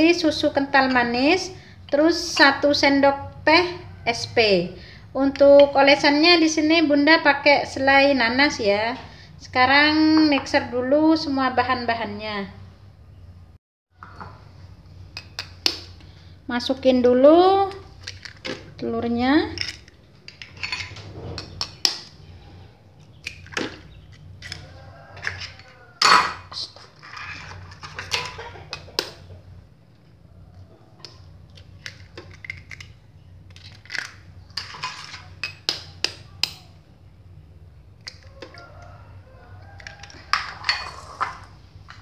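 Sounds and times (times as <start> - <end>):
eggshells cracking: 31.7 - 34.8.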